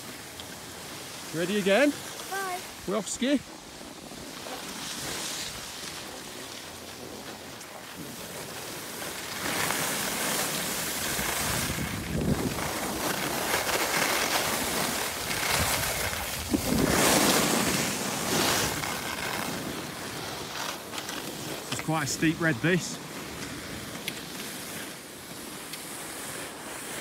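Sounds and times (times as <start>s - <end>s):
skis scraping over snow: 0.0s - 27.0s
wind on microphone: 11.0s - 13.5s, 14.9s - 18.8s.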